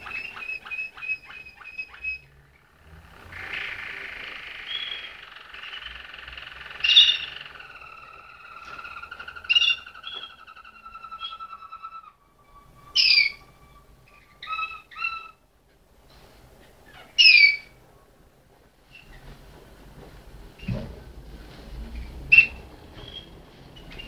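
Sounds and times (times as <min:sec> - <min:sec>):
canary singing: 0:00.0 - 0:15.5, 0:16.9 - 0:17.8.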